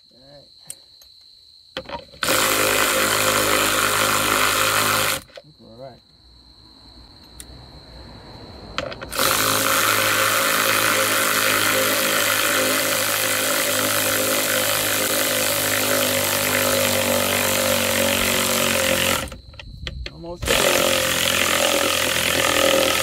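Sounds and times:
power drill running: 2.2 - 5.3, 9.1 - 19.4, 20.4 - 23.0.

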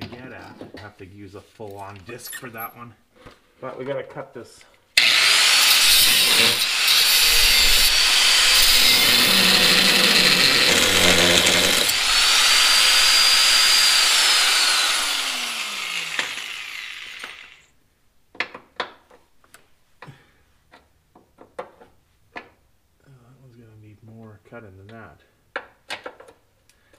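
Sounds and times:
angle grinder cutting metal: 5.0 - 17.7.

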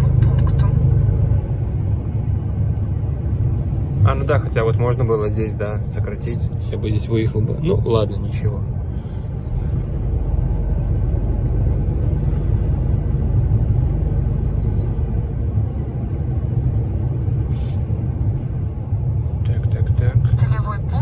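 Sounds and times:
truck engine and road rumble: 0.0 - 21.0
brief hiss: 17.5 - 17.9.

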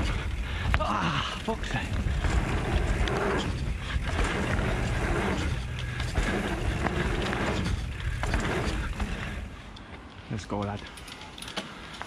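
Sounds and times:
wind rushing over microphone: 0.0 - 9.5
tyres on dirt: 0.0 - 10.8
bike clicks and rattles: 0.0 - 12.0.

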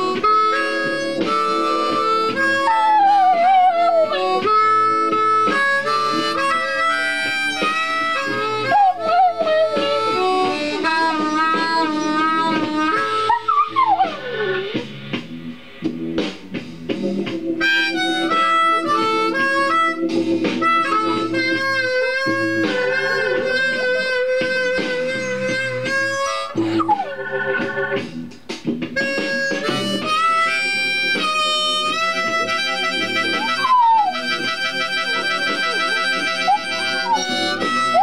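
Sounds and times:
blues harmonica playing: 0.0 - 38.0
guitar backing track: 0.0 - 38.0
dog howling: 2.7 - 4.2, 8.6 - 10.3, 12.9 - 14.8, 33.4 - 34.2, 36.4 - 37.3.

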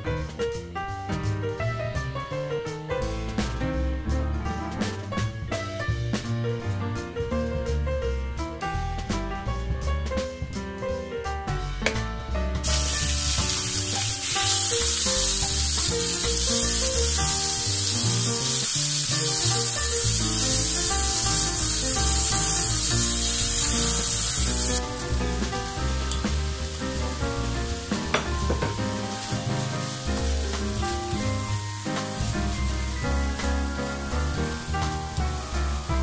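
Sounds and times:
light background music: 0.0 - 36.0
pork sizzling in a frying pan: 12.6 - 36.0.

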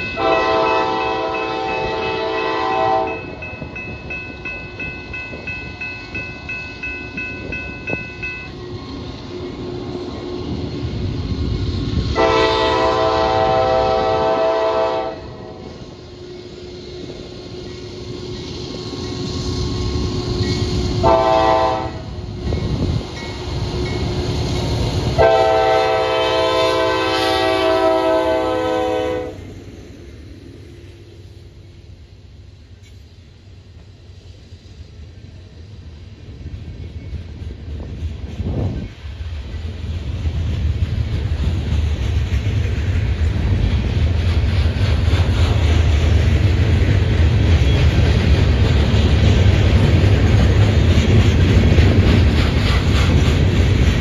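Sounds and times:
locomotive air horn blasts: 0.2 - 3.3, 12.1 - 15.6, 21.0 - 22.2, 25.2 - 29.4
train wheels clicking over rail joints: 32.6 - 54.0.

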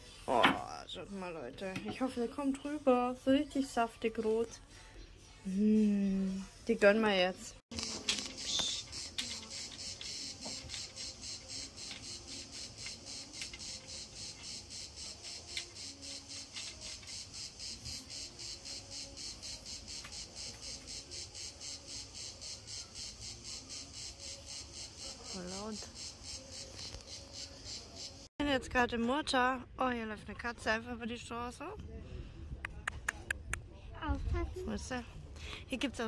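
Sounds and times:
insects shrilling: 7.7 - 28.3.

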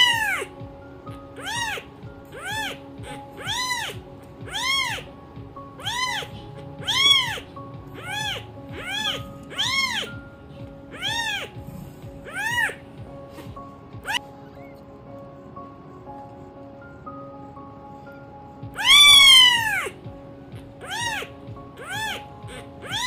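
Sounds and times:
cat meowing: 0.0 - 5.1, 5.8 - 10.2, 10.8 - 11.6, 12.2 - 12.8, 14.0 - 14.8, 18.7 - 20.0, 20.6 - 23.0
background music with held notes: 0.0 - 23.0.

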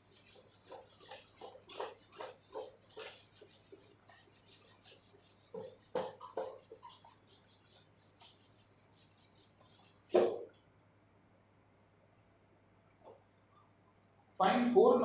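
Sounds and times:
cloth rubbing whiteboard: 0.0 - 10.4
knocks or scrapes: 0.0 - 10.5.

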